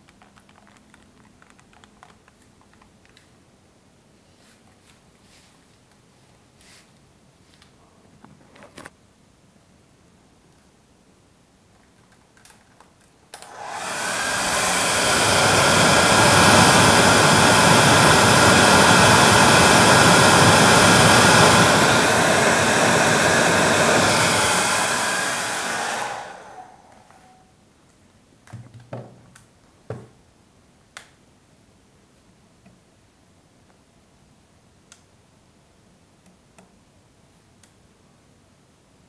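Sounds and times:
hair dryer blowing: 0:13.4 - 0:27.4.

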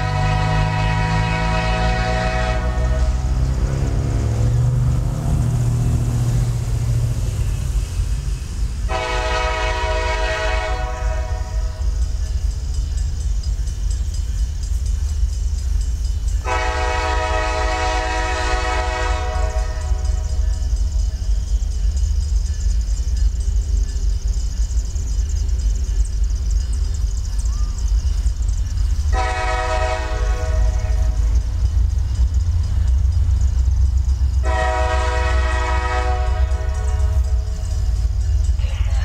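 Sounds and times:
locomotive air horn blasts: 0:00.0 - 0:03.9, 0:08.8 - 0:11.8, 0:16.4 - 0:20.4, 0:29.1 - 0:31.4, 0:34.4 - 0:37.5
diesel locomotive rumble: 0:00.0 - 0:39.0.

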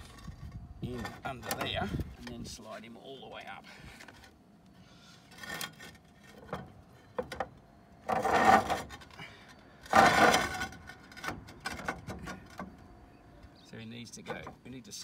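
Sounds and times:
roof tiles scraping: 0:00.0 - 0:02.7, 0:03.6 - 0:12.9.

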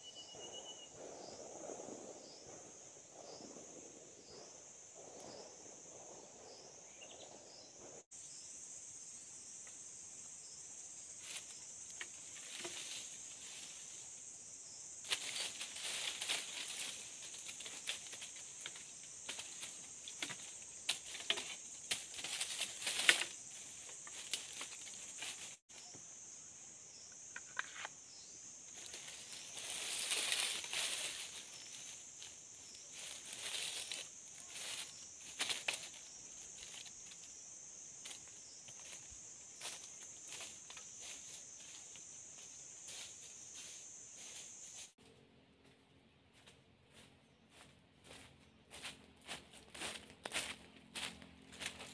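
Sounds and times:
high insect buzz: 0:06.5 - 0:45.0
leaves and bamboo rustling: 0:10.9 - 0:26.0, 0:28.6 - 0:45.1, 0:45.7 - 0:51.9.

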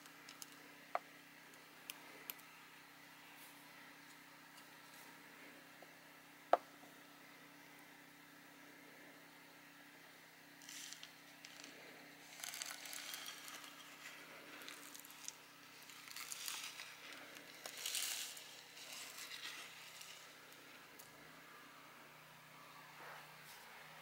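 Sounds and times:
soil trickling into a pot: 0:10.6 - 0:21.2.

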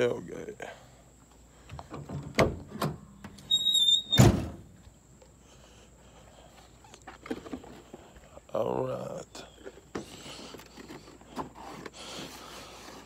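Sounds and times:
short high squeak: 0:03.4 - 0:04.3
tailgate dropping with heavy thump: 0:04.1 - 0:04.7.

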